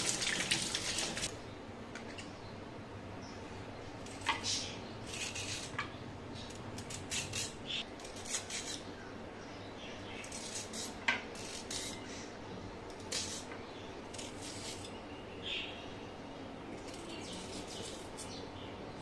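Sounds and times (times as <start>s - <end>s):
peeler scraping a carrot: 4.2s - 5.8s, 6.8s - 8.9s, 10.2s - 12.0s, 13.0s - 13.5s, 14.1s - 15.0s, 16.8s - 18.4s.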